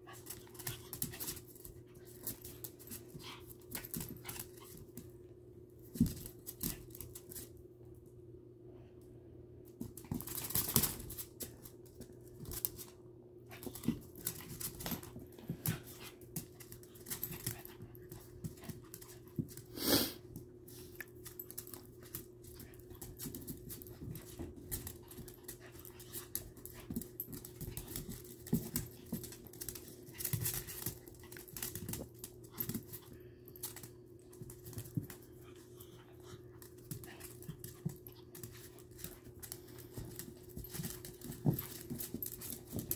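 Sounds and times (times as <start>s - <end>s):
dog claws clicking on floor: 0.0s - 5.1s, 5.8s - 7.6s, 9.8s - 19.7s, 20.7s - 42.9s
dogs scuffling: 0.0s - 5.1s, 9.7s - 42.9s.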